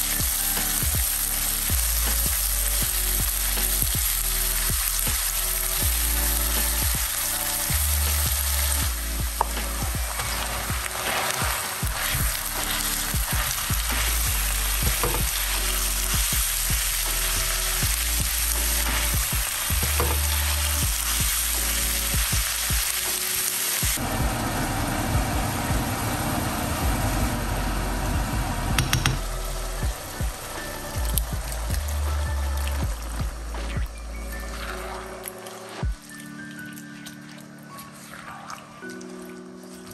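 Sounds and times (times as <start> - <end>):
food sizzling in hot oil: 0.0 - 28.0.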